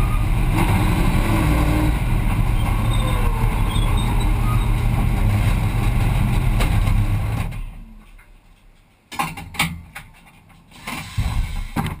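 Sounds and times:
low rumbling: 0.0s - 8.7s
clicks and knocks in cabin: 6.4s - 12.0s.

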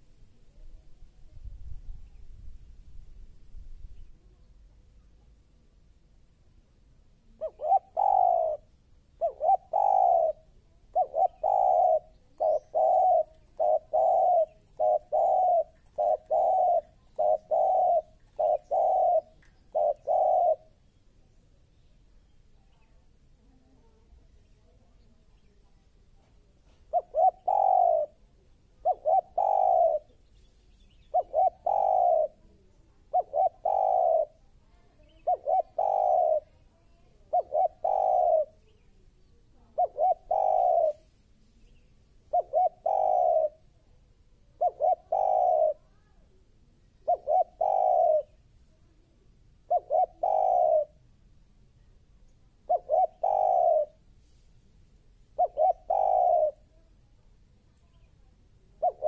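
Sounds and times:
dove cooing: 7.2s - 20.8s, 26.8s - 30.2s, 31.0s - 38.8s, 39.6s - 41.1s, 42.2s - 43.8s, 44.5s - 46.0s, 46.9s - 48.4s, 49.6s - 51.0s, 52.6s - 54.0s, 55.3s - 56.8s, 57.9s - 59.0s.

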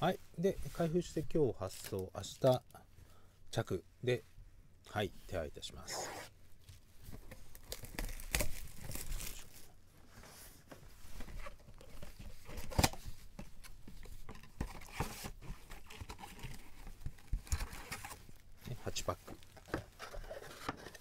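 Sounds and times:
plastic wrap crinkling and tearing: 1.6s - 2.6s, 7.3s - 9.7s.

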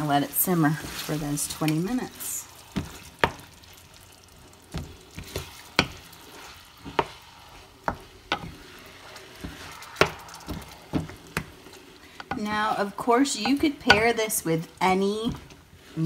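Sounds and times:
faint sizzle: 0.0s - 16.0s
spoon stirring thick sauce: 2.5s - 16.0s
wooden spoon knocking a pan: 2.7s - 3.6s, 4.7s - 6.1s, 6.8s - 7.2s, 7.8s - 8.6s, 9.4s - 11.6s, 13.3s - 14.3s.

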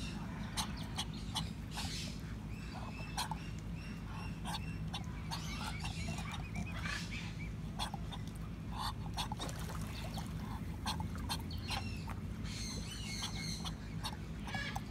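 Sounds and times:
steady low hum: 0.0s - 14.9s.

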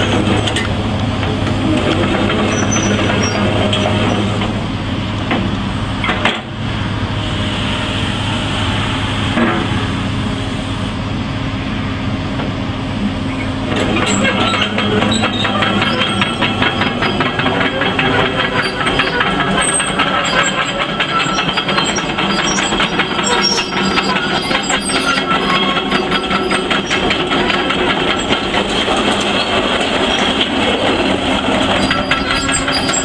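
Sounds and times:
diesel engine running: 0.0s - 33.0s
fast rattling clatter: 13.9s - 33.0s.

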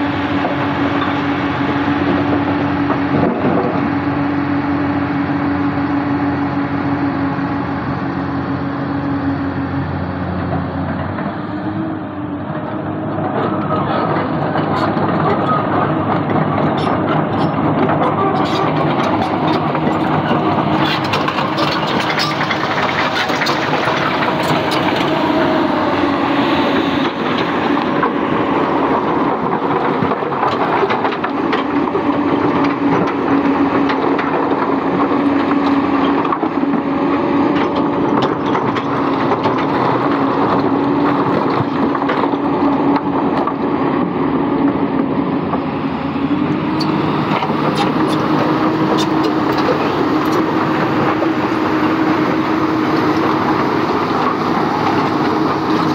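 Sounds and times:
excavator diesel engine humming: 0.0s - 55.9s.

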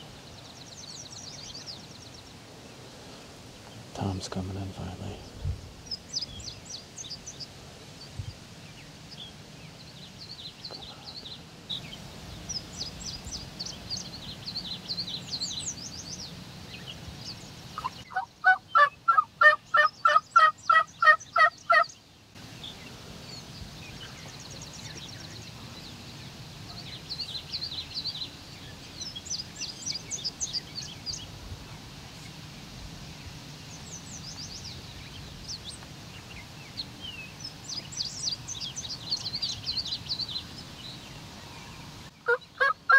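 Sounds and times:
songbirds chirping: 0.0s - 42.9s
turkey yelps: 17.8s - 21.8s, 42.3s - 42.9s.

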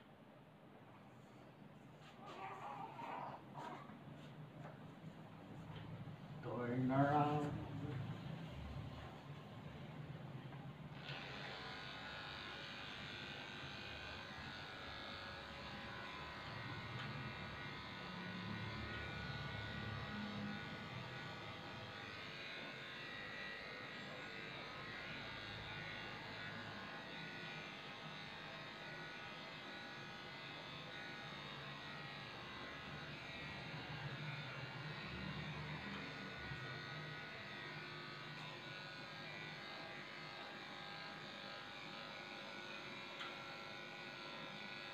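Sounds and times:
electric clippers humming: 10.9s - 44.9s.

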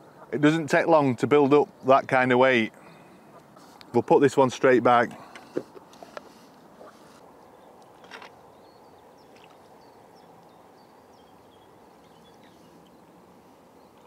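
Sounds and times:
small birds chirping: 5.1s - 14.0s.

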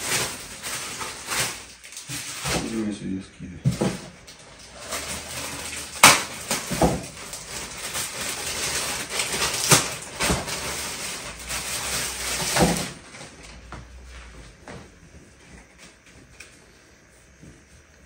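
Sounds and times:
plastic bag crinkling: 0.0s - 2.9s, 3.9s - 13.4s.

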